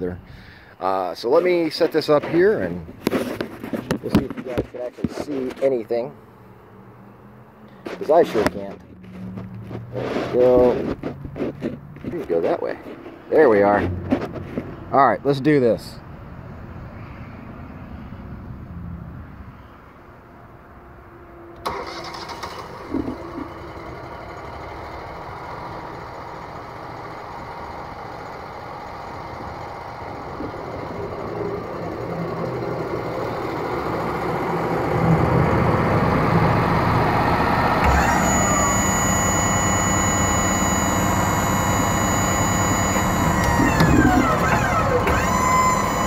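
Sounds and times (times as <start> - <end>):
sawmill engine running: 0.0 - 6.2, 7.8 - 15.4, 21.6 - 46.0
saw cutting log: 7.9 - 14.4, 37.8 - 46.0
high whine of band blade: 37.8 - 46.0.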